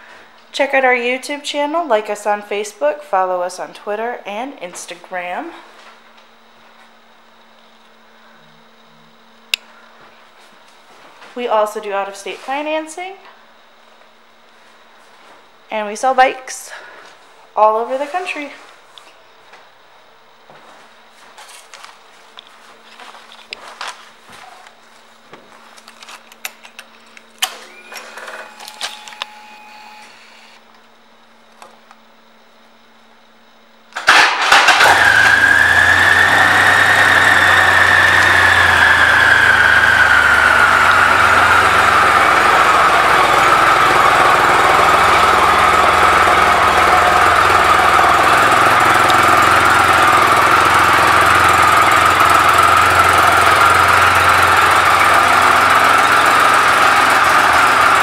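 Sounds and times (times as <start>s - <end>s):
motorcycle engine starting and idling: 33.9s - 58.0s.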